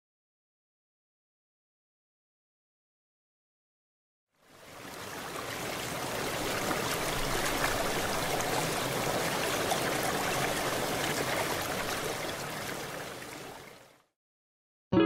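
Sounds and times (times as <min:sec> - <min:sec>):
steady rushing water-like noise: 0:04.4 - 0:14.0.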